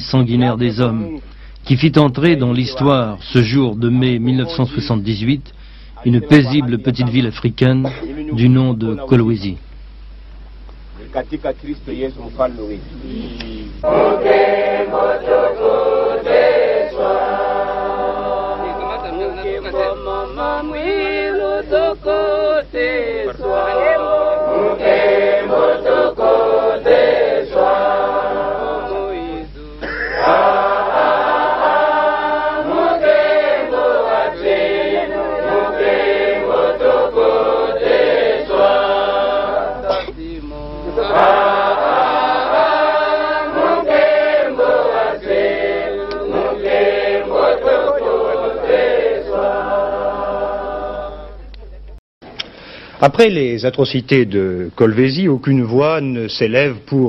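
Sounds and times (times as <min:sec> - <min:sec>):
choir singing: 0:13.8 - 0:51.5.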